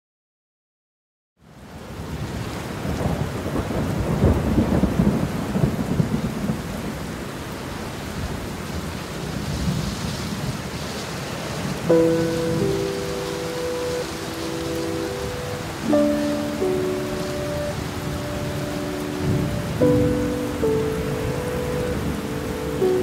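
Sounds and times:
heavy rain pouring: 1.4s - 23.0s
rolling thunder: 2.8s - 7.0s, 11.7s - 23.0s
sustained musical notes: 11.9s - 23.0s.

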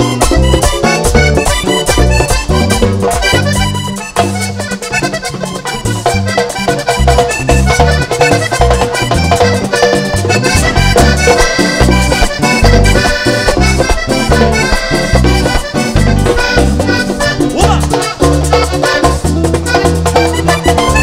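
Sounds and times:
bass and percussion beat: 0.0s - 21.0s
button accordion lead: 0.0s - 21.0s.

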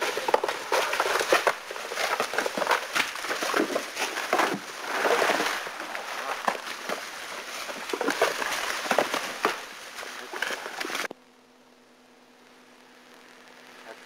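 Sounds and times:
dry leaves and twigs crackling: 0.0s - 11.1s.

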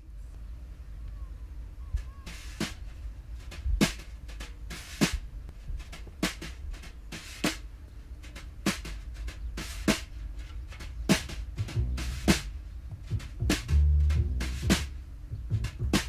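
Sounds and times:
damped snare drum hits: 3.5s - 5.2s, 5.8s - 7.7s, 8.3s - 10.1s, 10.7s - 16.0s
low rumble: 11.5s - 16.0s.

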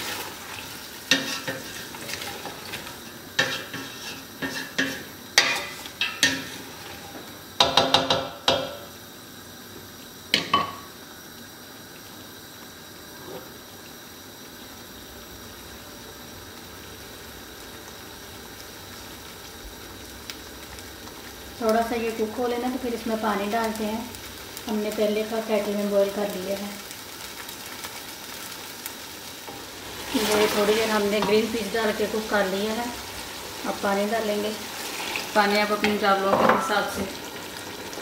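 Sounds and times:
vegetables sizzling: 0.0s - 38.0s
wooden spoon knocking steel pot: 7.6s - 8.8s.

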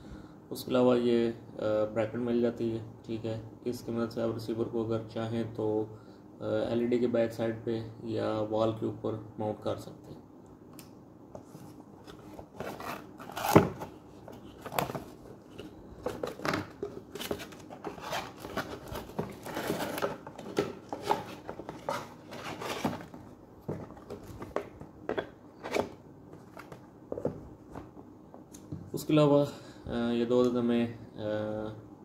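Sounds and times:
packaging rustling: 12.1s - 24.8s.

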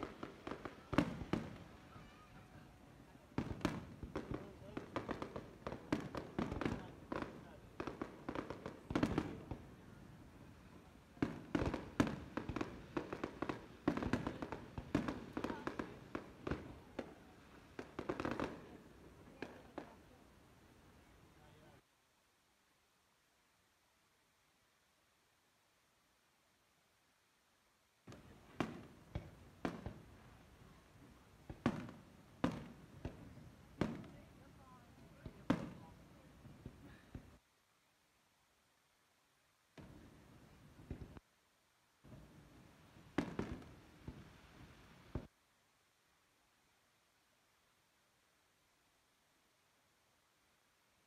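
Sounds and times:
fireworks bursting and crackling: 0.0s - 20.7s, 28.0s - 37.4s, 39.7s - 41.2s, 42.0s - 45.3s.

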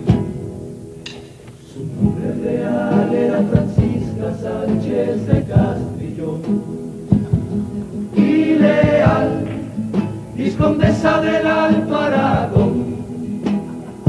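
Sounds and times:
sharp percussive beats: 0.0s - 14.0s
group singing in chorus: 1.7s - 14.0s.

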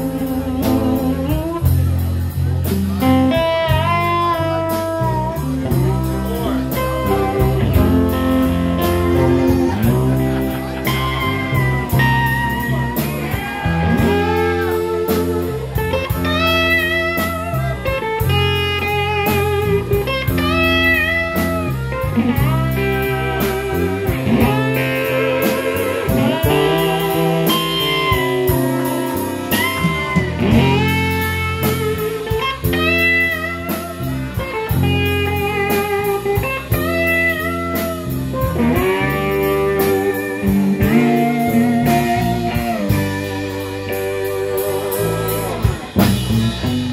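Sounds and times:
live band playing instrumental: 0.0s - 46.9s
steady drum beat: 0.0s - 46.9s
wavering lead melody: 0.0s - 46.9s.

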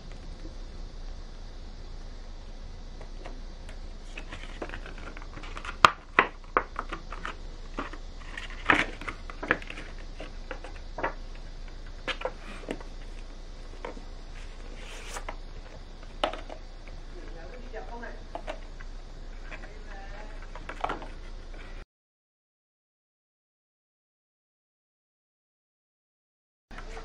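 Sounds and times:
steady low hum: 0.0s - 21.8s, 26.7s - 27.0s
plastic packaging crinkling and clicking: 4.1s - 14.0s.

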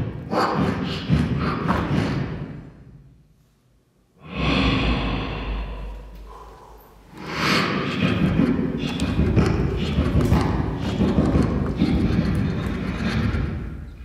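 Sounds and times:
breathy beatbox bass: 0.0s - 2.7s, 4.2s - 14.0s
beatboxing clicks and hisses: 7.1s - 14.0s.

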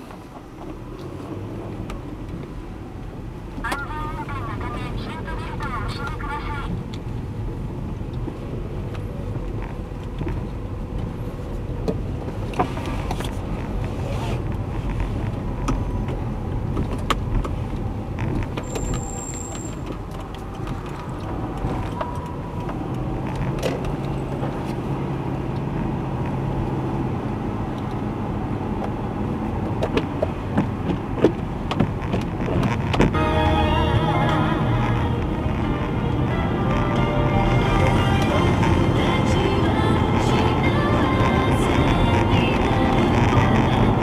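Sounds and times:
car interior rumble: 0.0s - 44.0s.

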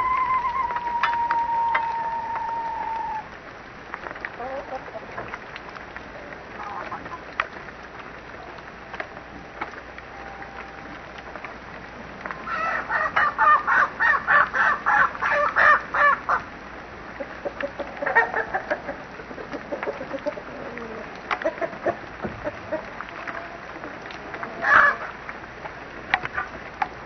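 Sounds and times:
chickens clucking: 4.3s - 5.3s, 6.6s - 7.3s, 17.2s - 23.6s.

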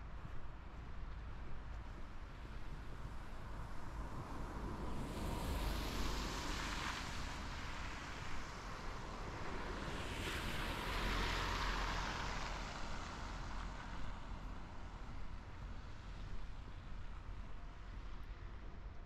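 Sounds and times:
tyres hissing on snowy road: 4.6s - 16.3s.

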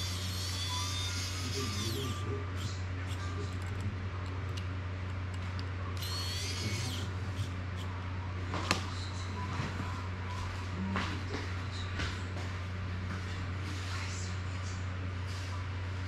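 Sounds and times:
high whir: 0.0s - 4.0s, 5.9s - 8.2s
steady low hum: 0.0s - 16.0s
screwdriver turning screws: 6.0s - 7.9s.

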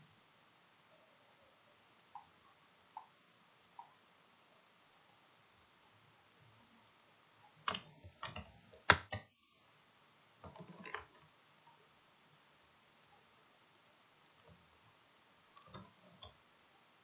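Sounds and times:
computer mouse clicks: 7.7s - 9.3s.

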